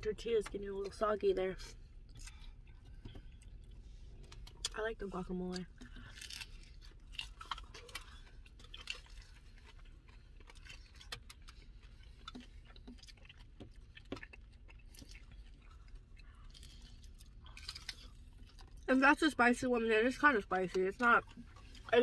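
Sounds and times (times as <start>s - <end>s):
steady low hum: 0.0s - 22.0s
mouth clicks and smacks chewing: 5.5s - 18.9s.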